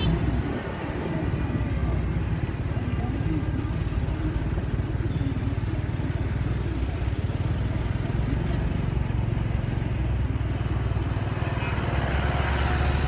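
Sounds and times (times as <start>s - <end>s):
scooter engine humming: 0.0s - 13.0s
street noise: 0.0s - 13.0s.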